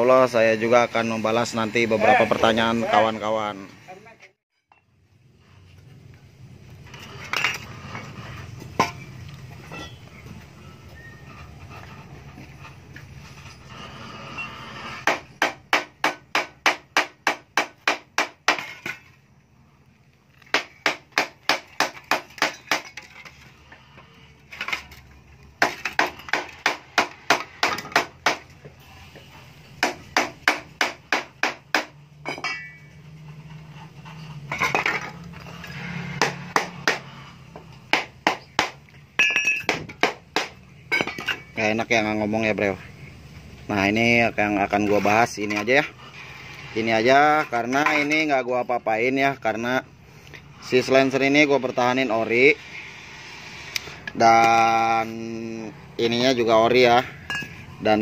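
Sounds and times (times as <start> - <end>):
hammer striking sheet steel: 35.8 - 41.3.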